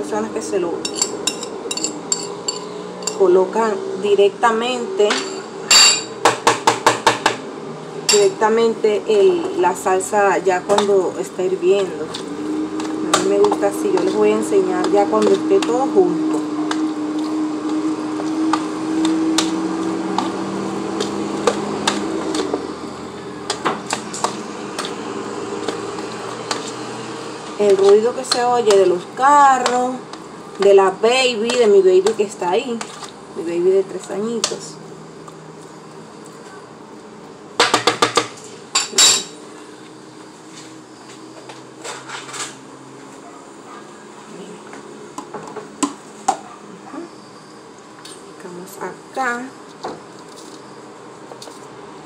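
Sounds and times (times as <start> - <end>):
hard objects clattering against dishes: 0.9 - 3.2
spoon scraping a bowl: 0.9 - 3.2, 25.6 - 29.0.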